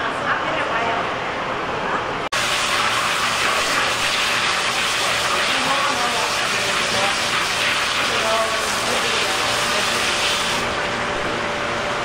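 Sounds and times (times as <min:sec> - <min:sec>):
water spraying from hose: 0:02.4 - 0:10.8.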